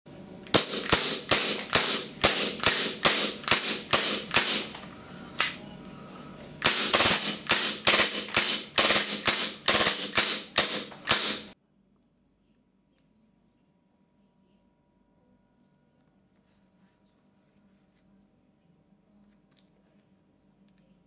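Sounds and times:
airsoft pistol shots: 0.5s - 4.8s, 6.6s - 11.6s.

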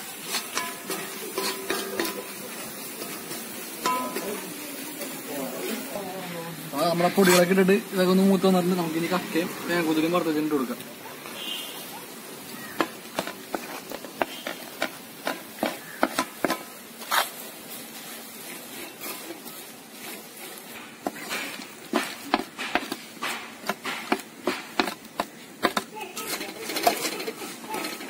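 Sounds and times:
metal ladle scraping a pan: 0.0s - 4.5s, 12.8s - 25.0s, 26.2s - 28.0s.

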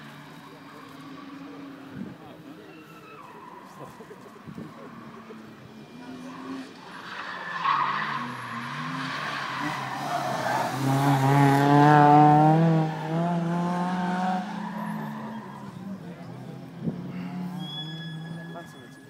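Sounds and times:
rally car engine accelerating: 3.8s - 18.6s.

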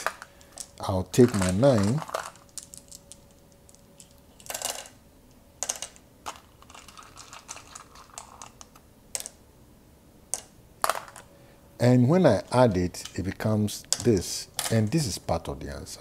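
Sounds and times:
seeds rattling: 0.0s - 3.4s.

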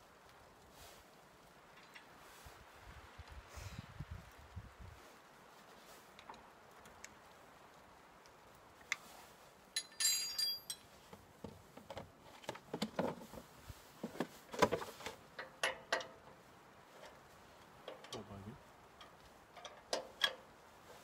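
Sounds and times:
metal tool clicks and clinks: 9.8s - 10.9s.

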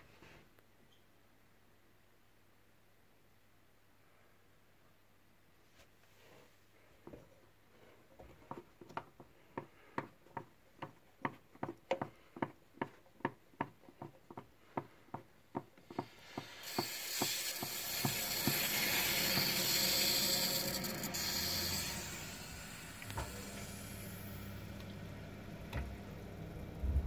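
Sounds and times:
water rushing through tap: 15.9s - 24.1s.

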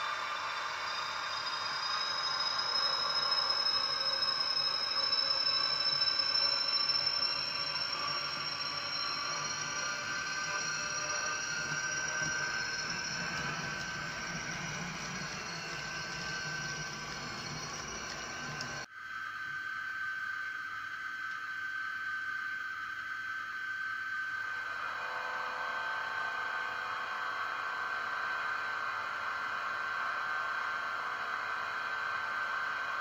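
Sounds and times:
model locomotive whine: 0.0s - 33.0s
wheels rumbling on track: 6.6s - 18.8s.

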